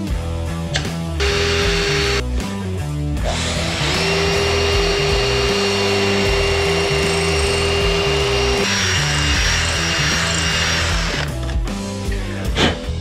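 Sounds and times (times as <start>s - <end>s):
rock music: 0.0s - 13.0s
electric drill whine: 1.2s - 2.2s, 3.3s - 11.3s.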